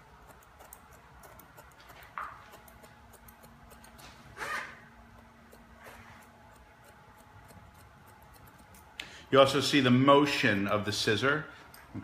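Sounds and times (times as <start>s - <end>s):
scissors snipping over comb: 0.2s - 4.2s, 5.1s - 9.0s.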